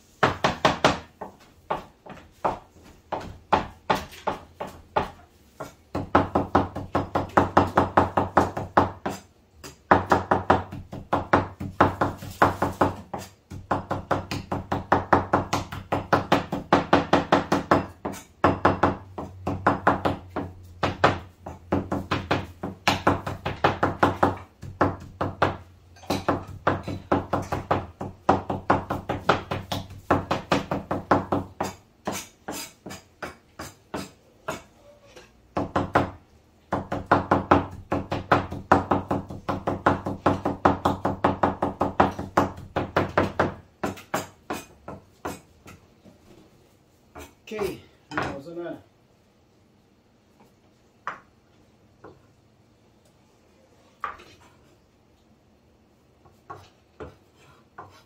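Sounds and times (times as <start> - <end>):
cleaver chopping on wooden board: 35.6 - 45.8.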